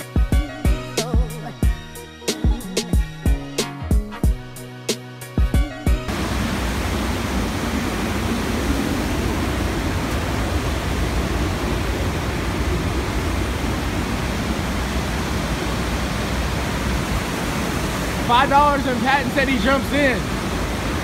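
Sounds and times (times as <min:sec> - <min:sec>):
water rushing over dam spillway: 0:06.1 - 0:21.0.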